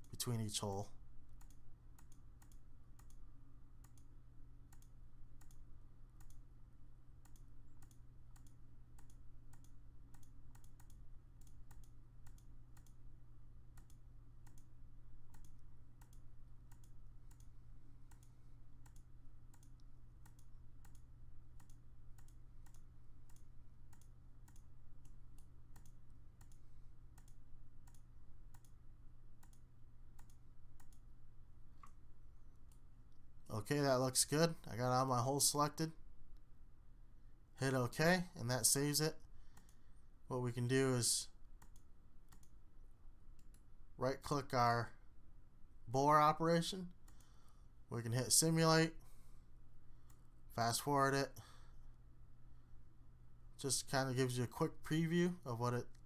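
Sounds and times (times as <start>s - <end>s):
low steady hum: 0.0s - 56.0s.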